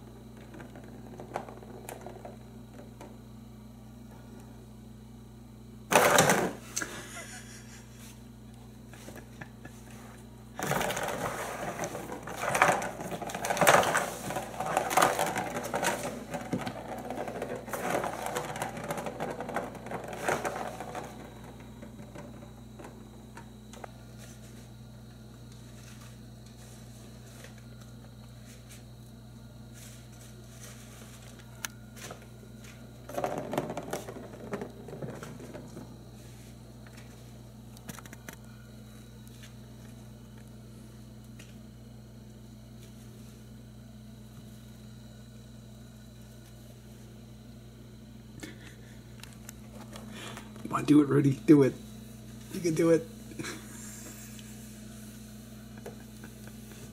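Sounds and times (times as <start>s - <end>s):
steady low hum: 0.0s - 56.9s
plastic ball rattling around track: 0.4s - 3.1s, 10.6s - 23.1s, 33.1s - 35.9s.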